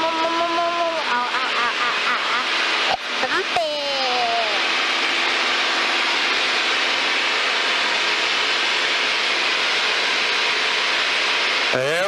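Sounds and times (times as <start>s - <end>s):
faint aircraft engine tones: 0.0s - 12.0s.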